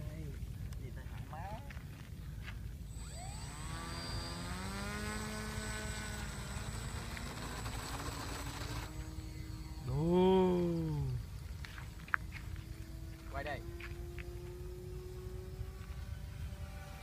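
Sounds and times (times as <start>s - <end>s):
electric motor and propeller whine: 2.7s - 17.0s.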